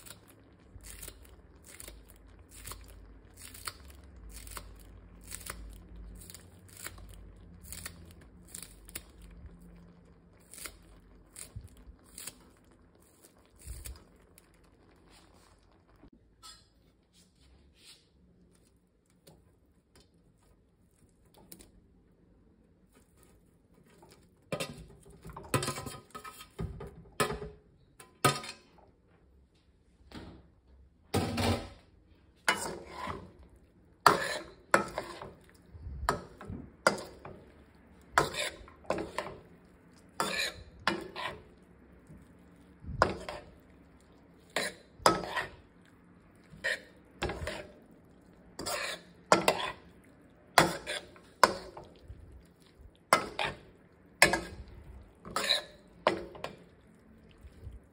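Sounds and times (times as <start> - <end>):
metal spoon scraping a steel pan: 24.5 - 26.6, 32.5 - 33.4, 34.1 - 35.4, 38.2 - 39.5, 40.2 - 41.6, 43.0 - 43.6, 44.4 - 45.6, 46.5 - 47.8, 48.6 - 49.9, 50.6 - 51.9, 53.1 - 56.6.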